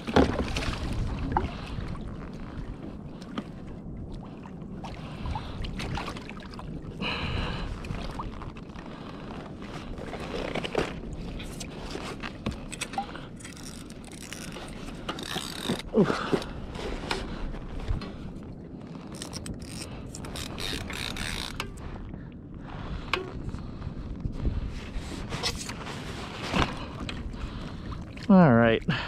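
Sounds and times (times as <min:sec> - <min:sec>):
water splashing against kayak hull: 0:00.0 - 0:23.8
fishing tackle knocking and scraping: 0:23.0 - 0:23.5.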